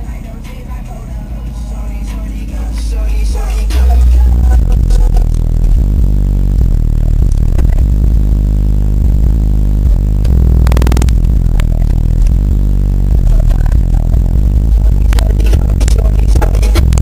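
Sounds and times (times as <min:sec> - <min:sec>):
loud hip hop bass from subwoofer: 0:00.0 - 0:17.0
buzzing burst: 0:02.2 - 0:17.0.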